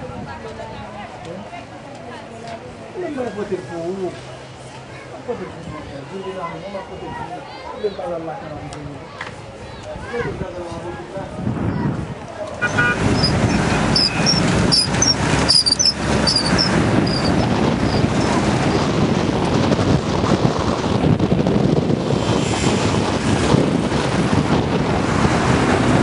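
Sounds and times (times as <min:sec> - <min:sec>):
wind rumbling on microphone: 0:08.8 - 0:26.0.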